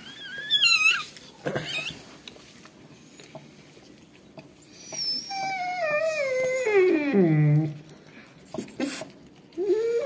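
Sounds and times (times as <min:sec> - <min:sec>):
puppy squeaking: 0:00.0 - 0:02.0, 0:04.8 - 0:07.7
puppy whining: 0:00.0 - 0:02.2, 0:04.6 - 0:07.9, 0:08.6 - 0:10.0.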